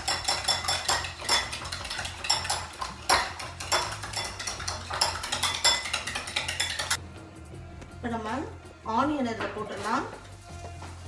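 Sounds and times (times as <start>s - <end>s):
spoon clinking against glass bowl: 0.0s - 7.0s.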